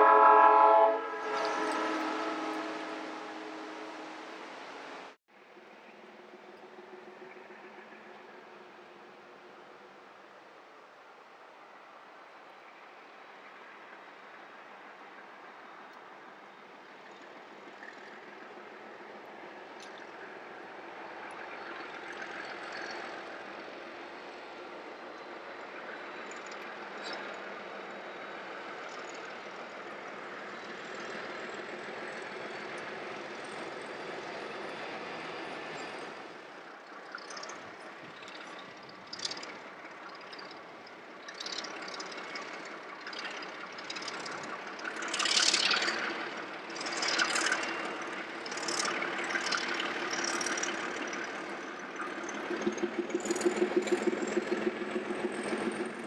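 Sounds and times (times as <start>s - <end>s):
diesel locomotive engine running: 0.0s - 10.4s, 12.6s - 56.0s.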